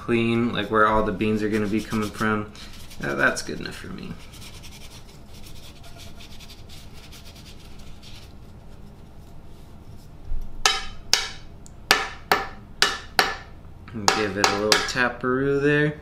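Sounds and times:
paper towel rubbing: 0.5 - 10.1.

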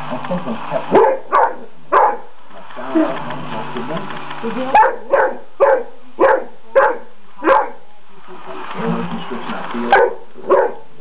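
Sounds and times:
dog barking: 0.9 - 2.3, 4.7 - 7.9, 9.9 - 10.9.

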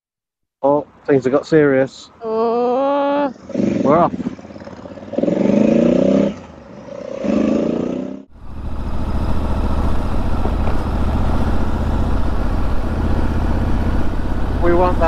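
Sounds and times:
motorcycle engine accelerating: 3.3 - 15.0
riding noise at road speed: 3.4 - 15.0.

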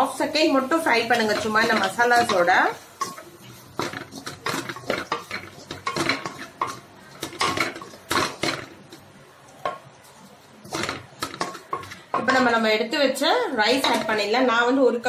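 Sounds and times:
wooden spatula scraping metal pan: 0.0 - 8.7, 10.6 - 12.6.

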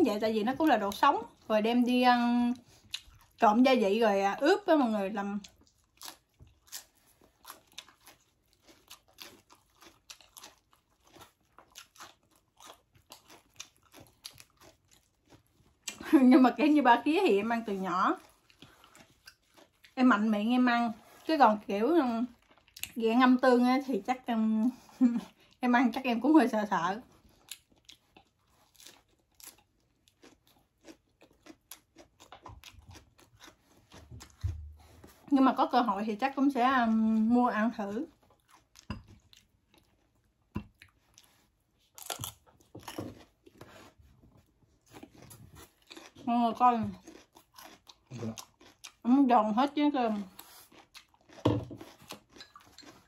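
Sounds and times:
crunching and chewing: 2.5 - 3.4, 5.3 - 16.1, 17.6 - 20.3, 22.2 - 23.0, 27.0 - 35.3, 38.0 - 49.1, 49.7 - 53.0.

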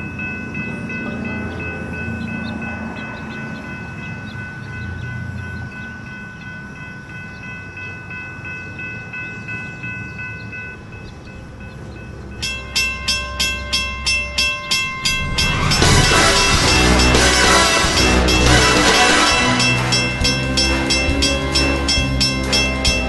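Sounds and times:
diesel locomotive rumble: 0.0 - 23.0
railroad crossing bell ringing: 0.0 - 23.0.

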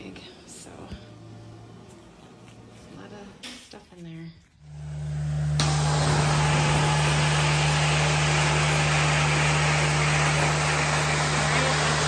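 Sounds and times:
carpet extractor motor hum: 4.6 - 12.0.

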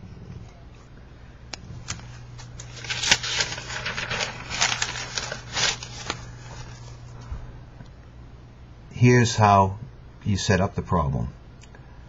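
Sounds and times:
paper rustling: 1.8 - 7.2.

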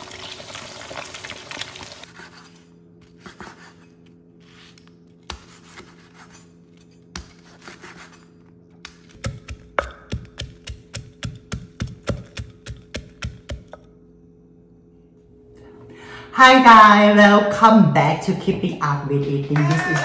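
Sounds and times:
meat sizzling in hot oil: 0.0 - 2.0
knife cutting on wooden board: 3.1 - 9.6.

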